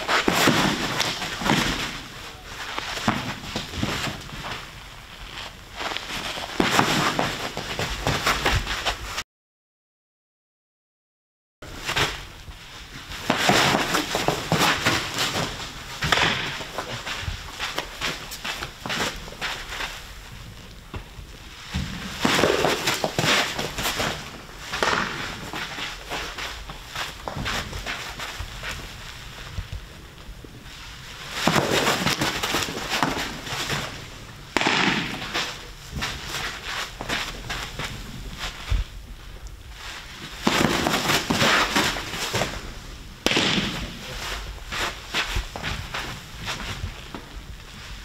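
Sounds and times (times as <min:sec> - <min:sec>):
noisy rush with pops: 0:00.0 - 0:09.2, 0:11.6 - 0:48.0
baseball smacking into gloves: 0:24.8 - 0:26.1, 0:34.6 - 0:36.1, 0:43.2 - 0:44.0
sharp bangs: 0:34.5 - 0:35.6, 0:43.2 - 0:44.1.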